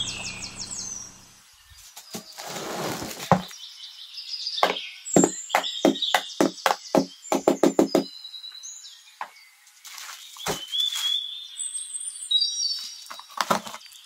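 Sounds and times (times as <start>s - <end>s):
knocks: 4.6s - 8.1s.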